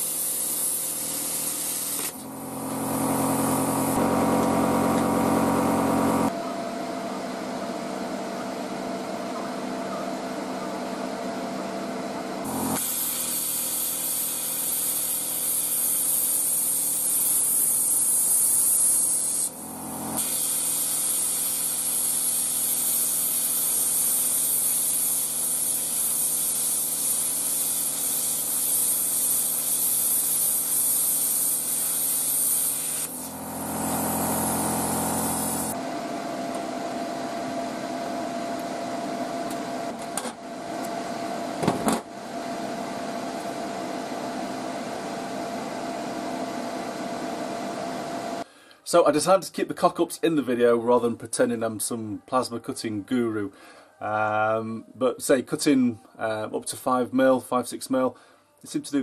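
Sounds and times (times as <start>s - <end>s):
plasma cutter hissing: 0.0s - 6.3s, 12.5s - 35.8s.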